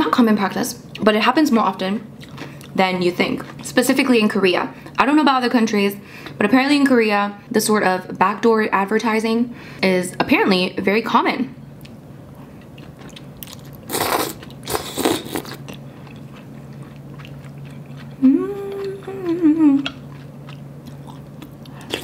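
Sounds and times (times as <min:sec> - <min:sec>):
chewing with wet mouth clicks: 0:02.2 - 0:03.8, 0:11.8 - 0:22.0
noodles slurped: 0:13.9 - 0:15.8
person humming mmm: 0:18.2 - 0:20.0.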